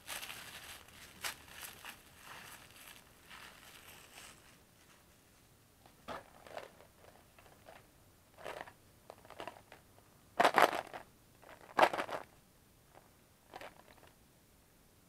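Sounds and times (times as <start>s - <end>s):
plastic jar rustling and knocking: 6.0s - 9.8s, 10.4s - 12.3s, 12.9s - 14.1s.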